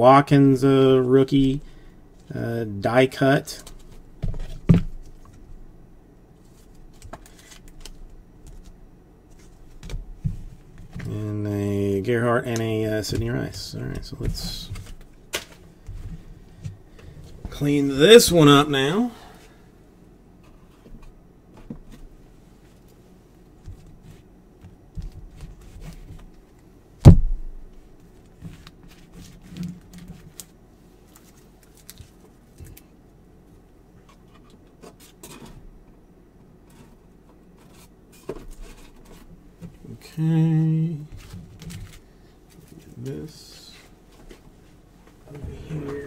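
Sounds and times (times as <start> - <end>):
cards and packaging rustling: 6.4 - 9.9, 28.3 - 32.9, 41.1 - 43.2.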